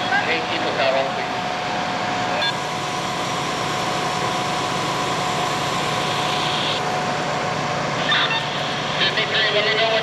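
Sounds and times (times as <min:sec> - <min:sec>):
diesel engine running: 0:00.0 - 0:10.0
steady tone: 0:02.4 - 0:08.0.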